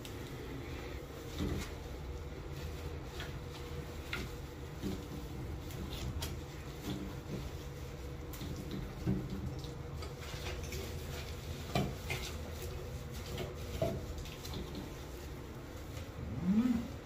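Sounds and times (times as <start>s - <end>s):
steady low hum: 0.0s - 17.0s
spraying and wiping: 1.0s - 17.0s.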